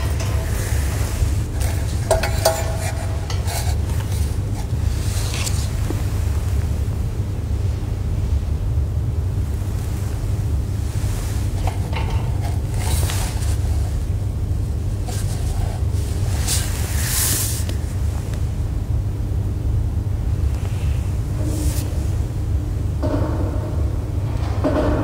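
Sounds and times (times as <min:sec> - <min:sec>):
soft rustling and handling: 0:00.0 - 0:06.8, 0:09.4 - 0:18.5
steady low rumble: 0:00.0 - 0:24.7.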